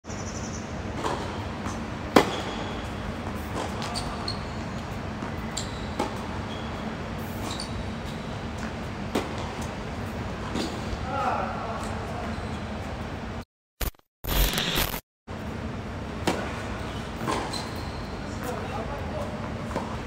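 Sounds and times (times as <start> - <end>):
steady background hum: 0.1 - 13.4, 14.3 - 20.0
shoes squeaking on hard court: 1.0 - 9.5, 10.4 - 10.9, 11.8 - 13.0, 16.8 - 18.6.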